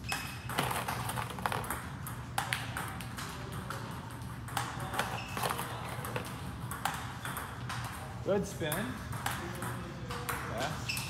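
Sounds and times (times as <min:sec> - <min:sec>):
table tennis balls clicking: 0:00.0 - 0:11.0.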